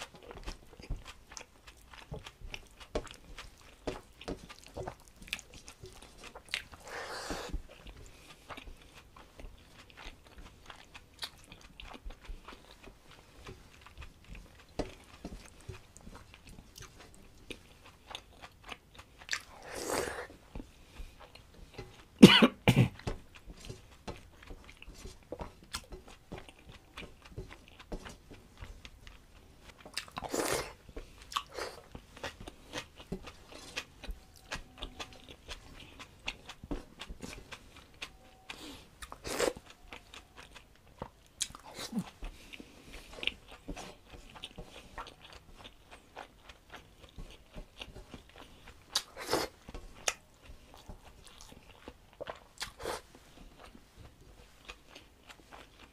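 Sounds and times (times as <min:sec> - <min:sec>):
man chewing food: 0:00.0 - 0:55.9.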